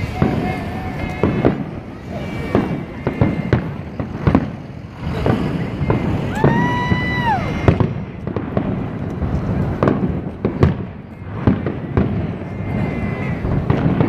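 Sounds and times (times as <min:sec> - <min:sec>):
high-pitched whistling tone: 0:00.0 - 0:08.2
fireworks bangs: 0:00.0 - 0:14.0.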